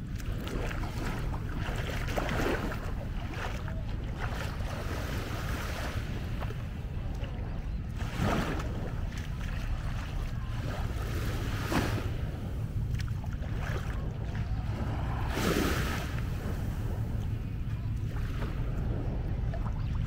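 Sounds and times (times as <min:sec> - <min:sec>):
wind on microphone: 0:00.0 - 0:20.0
sea waves washing onto sand: 0:07.9 - 0:20.0.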